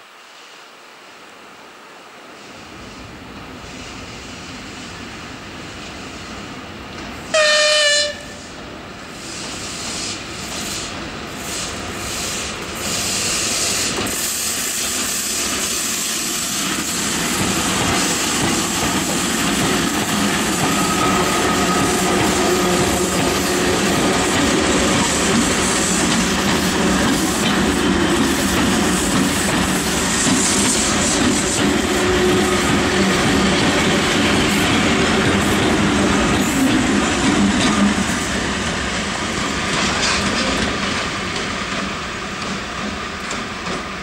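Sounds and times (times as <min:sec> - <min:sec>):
train wheels rumbling on rails: 0:02.5 - 0:44.0
locomotive horn blast: 0:07.3 - 0:08.4.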